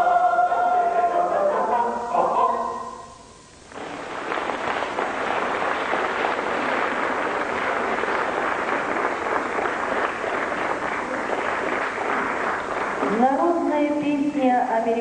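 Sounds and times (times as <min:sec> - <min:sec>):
audience applauding: 0:03.7 - 0:13.6.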